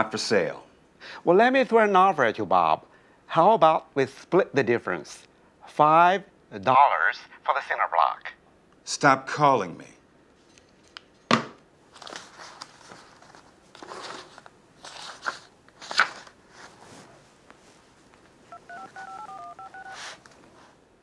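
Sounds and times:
book pages rustling: 11.9 - 20.8
phone keypad beeps: 18.5 - 20.0.

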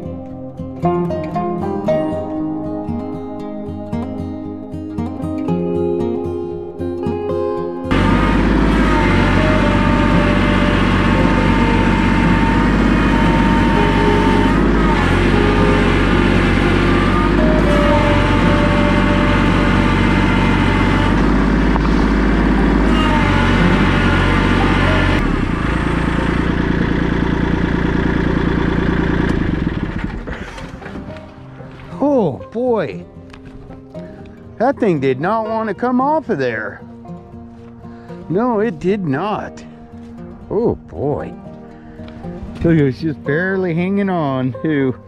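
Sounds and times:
tractor diesel engine running: 7.9 - 32.2.

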